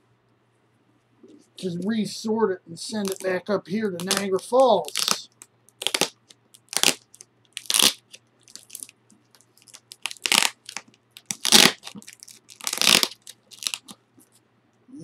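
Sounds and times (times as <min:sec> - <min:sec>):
tape crinkling: 0:02.9 - 0:03.4, 0:04.0 - 0:14.4
tape ripping off cardboard: 0:04.0 - 0:05.2, 0:05.8 - 0:08.9, 0:09.6 - 0:14.0.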